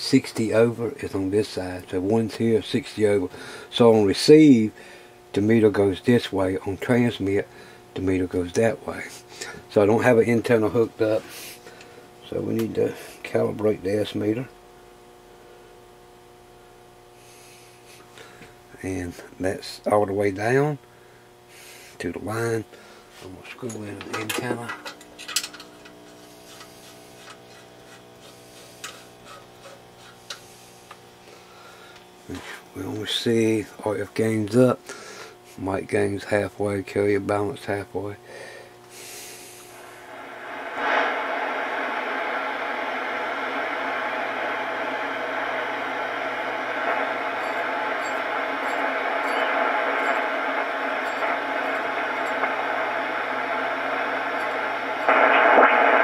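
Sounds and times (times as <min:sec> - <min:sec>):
radio static hiss: 0:00.0 - 0:56.0
radio receiver hum and hash: 0:22.1 - 0:31.0, 0:39.9 - 0:56.0.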